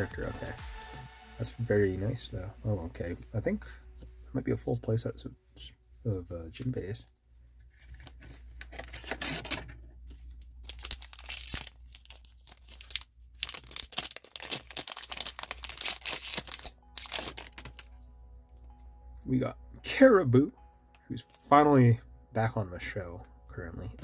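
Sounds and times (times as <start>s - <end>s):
foil wrapper crinkling and tearing: 7.6s - 18.0s.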